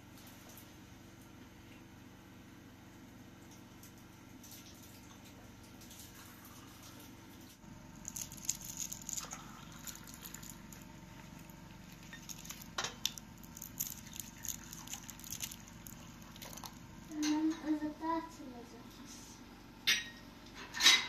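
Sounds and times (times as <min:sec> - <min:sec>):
tea trickling into glass: 0:08.0 - 0:16.8
glassware clinking on metal tray: 0:19.9 - 0:20.2.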